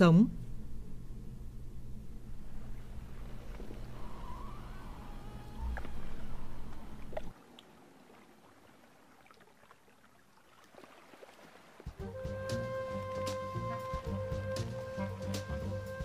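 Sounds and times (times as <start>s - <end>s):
low rumbling noise: 0.3s - 7.3s
water trickling and lapping: 2.4s - 14.4s
music: 12.0s - 16.0s.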